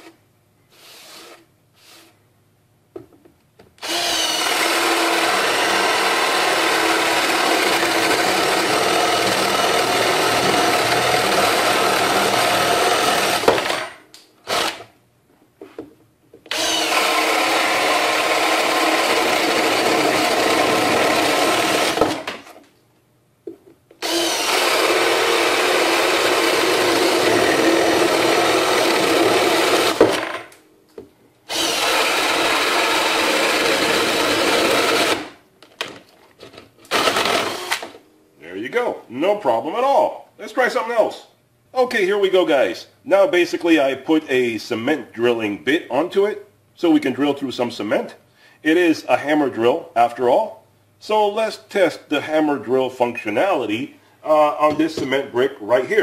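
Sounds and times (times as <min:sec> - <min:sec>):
cordless drill boring through board: 0:03.8 - 0:14.8, 0:16.5 - 0:22.4, 0:24.0 - 0:30.4, 0:31.5 - 0:35.3, 0:36.9 - 0:38.0.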